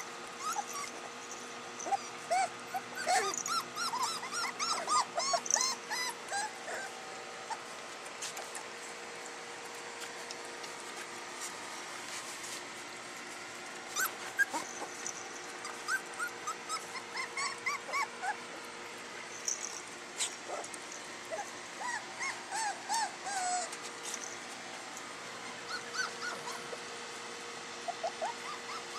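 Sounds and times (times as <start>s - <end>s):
puppies whimpering: 0.0s - 8.9s, 13.9s - 18.8s, 19.5s - 24.2s, 25.2s - 27.0s, 27.7s - 28.9s.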